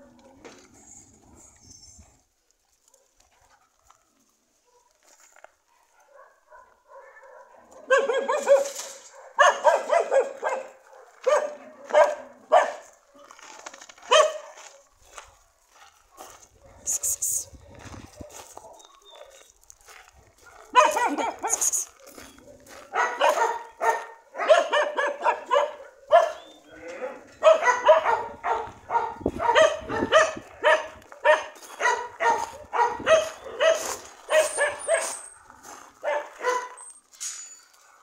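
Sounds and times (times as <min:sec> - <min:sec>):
dogs barking: 0:05.7 - 0:13.0, 0:14.0 - 0:35.3, 0:35.9 - 0:36.8.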